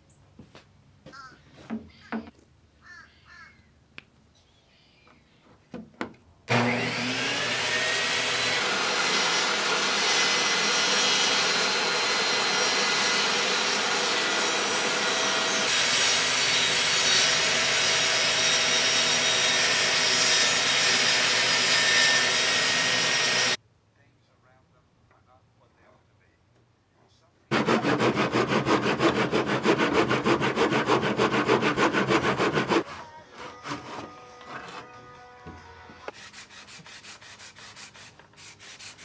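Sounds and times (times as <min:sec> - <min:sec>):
saw ripping wood: 0:06.5 - 0:23.6, 0:27.5 - 0:35.0
table saw motor running: 0:06.5 - 0:23.6, 0:27.5 - 0:32.8.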